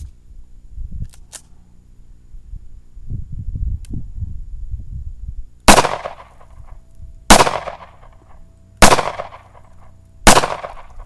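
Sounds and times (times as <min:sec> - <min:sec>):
handgun shots with echo: 0:05.7 - 0:06.6, 0:07.3 - 0:08.2, 0:08.8 - 0:09.7, 0:10.3 - 0:11.0.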